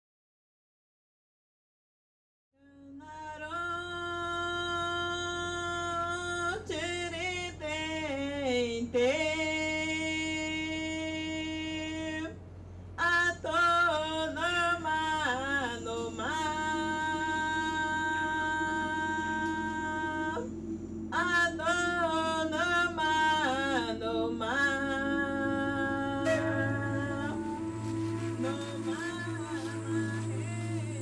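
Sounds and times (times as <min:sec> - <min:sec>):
low drone: 0:03.1 - 0:31.0
person singing long notes: 0:13.1 - 0:31.0.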